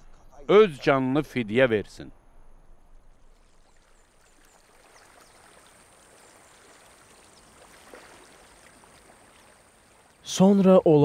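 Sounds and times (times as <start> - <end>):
stream running over rocks: 3.3 - 11.0.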